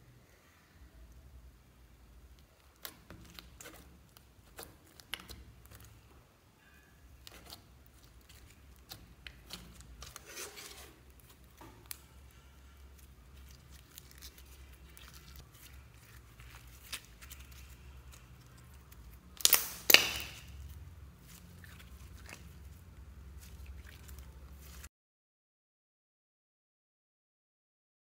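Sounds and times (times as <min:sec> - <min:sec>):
slime popping: 0:02.3 - 0:06.0, 0:07.2 - 0:24.9
slime squeezed by hand: 0:07.2 - 0:24.9.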